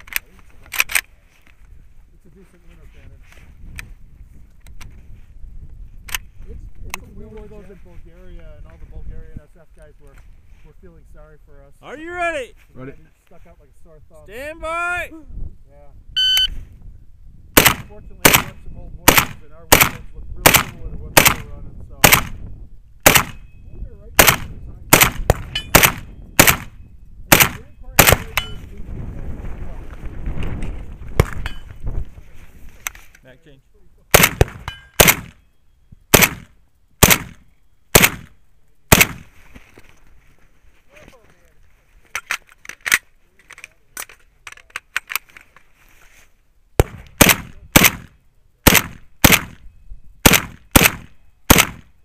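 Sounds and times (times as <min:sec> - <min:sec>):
rifle shots: 0:17.6 - 0:22.4, 0:23.0 - 0:23.4, 0:24.2 - 0:28.6, 0:34.1 - 0:35.4, 0:36.1 - 0:39.3, 0:46.8 - 0:49.6, 0:50.2 - 0:51.9.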